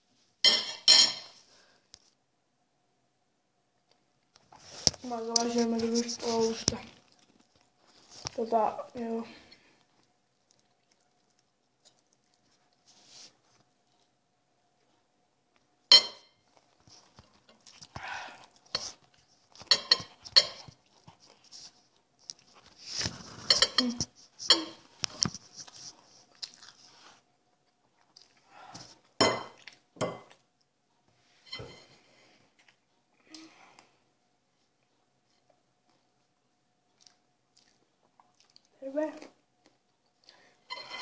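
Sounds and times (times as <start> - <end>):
fork clinking on a plate: 0.4 - 1.4, 15.9 - 16.3, 19.6 - 20.7.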